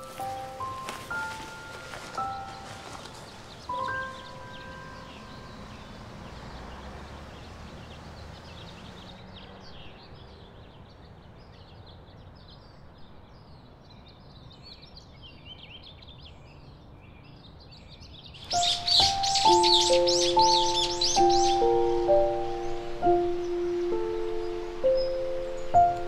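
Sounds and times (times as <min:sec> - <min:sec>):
steady background hiss: 0:00.0 - 0:06.2, 0:18.4 - 0:26.0
small birds chirping and trilling: 0:00.0 - 0:26.0.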